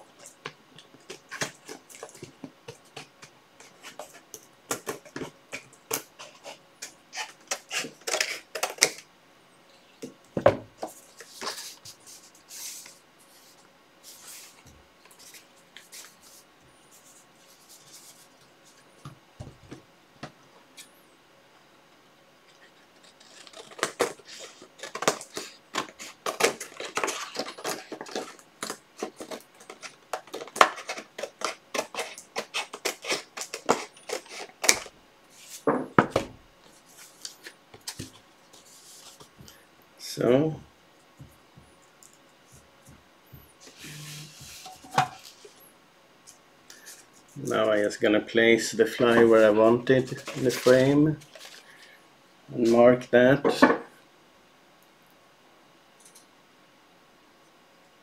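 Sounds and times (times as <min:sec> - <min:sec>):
paper and card handling: 0:10.8 - 0:18.8, 0:22.6 - 0:35.7, 0:36.6 - 0:39.6, 0:43.6 - 0:45.6, 0:46.7 - 0:51.9
scissors snipping paper: 0:23.1 - 0:34.9.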